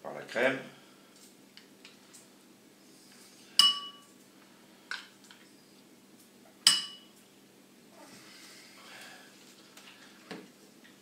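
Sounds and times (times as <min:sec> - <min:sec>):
spoon clinking on ceramic bowl: 0:03.6 - 0:04.0, 0:06.7 - 0:07.1.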